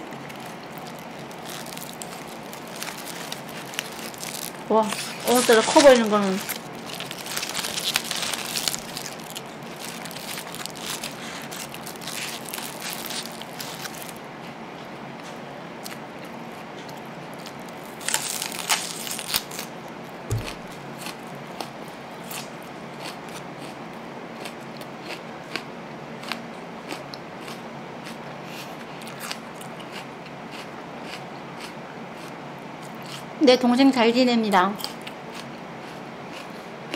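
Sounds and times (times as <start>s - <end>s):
crisp crunching of raw onion: 0.0s - 14.2s, 16.9s - 23.8s
chewing close to microphone: 0.0s - 14.6s.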